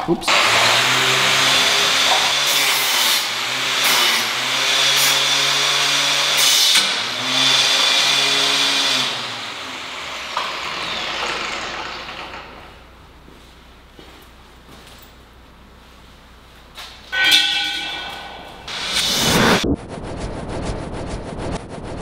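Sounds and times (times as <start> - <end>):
grinder spinning down whine: 0.3 - 12.5, 18.7 - 22.0
angle grinder grinding metal: 0.3 - 12.8.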